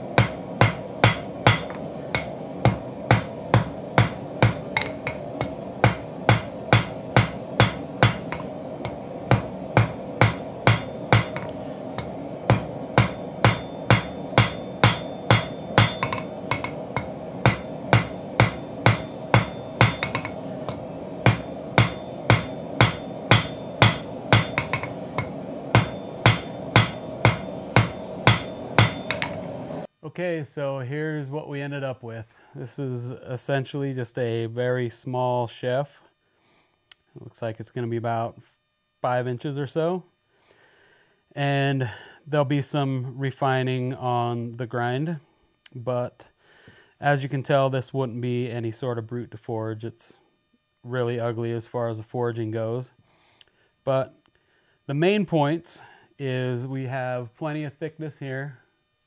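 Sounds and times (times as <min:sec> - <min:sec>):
hammer striking steel on anvil: 0:00.0 - 0:29.7
background hum: 0:00.0 - 0:59.0.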